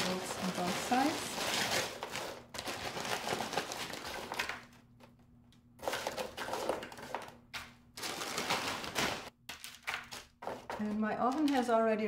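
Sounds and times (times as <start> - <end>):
vegetables scattering onto paper: 0.0 - 4.7, 5.8 - 11.7
plastic bag crinkling: 0.0 - 4.8, 8.0 - 10.2.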